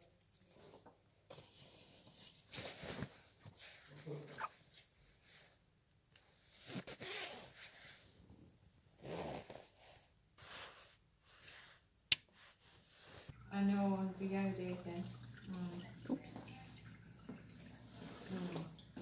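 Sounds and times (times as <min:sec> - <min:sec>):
zipper rasps: 0:06.6 - 0:07.7, 0:09.0 - 0:09.8.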